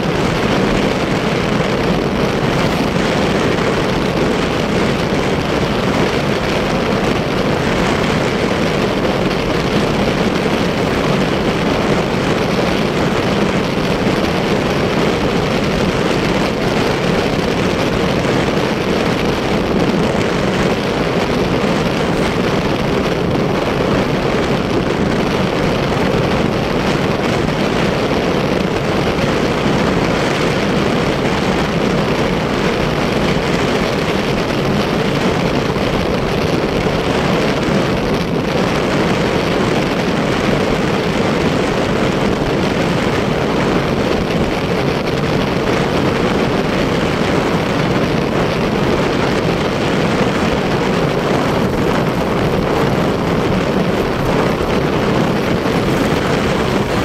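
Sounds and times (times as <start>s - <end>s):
motorcycle engine droning: 0.0s - 57.0s
wind rushing over microphone: 0.0s - 57.0s.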